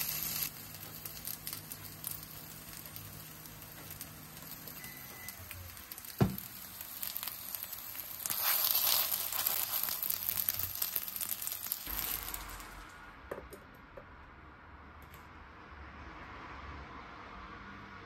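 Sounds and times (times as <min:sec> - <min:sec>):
dumplings sizzling in oil: 0:00.0 - 0:13.2.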